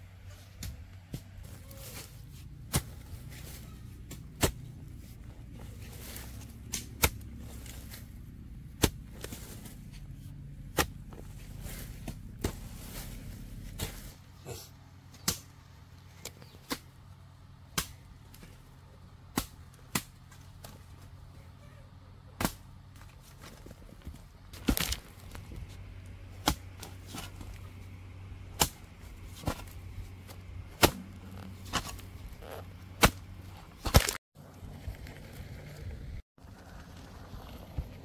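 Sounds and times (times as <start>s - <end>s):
low steady hum: 0.0s - 38.0s
sharp chopping strikes: 6.7s - 7.3s, 22.4s - 22.6s, 26.4s - 26.7s, 28.6s - 29.8s, 30.7s - 32.0s, 33.0s - 34.2s.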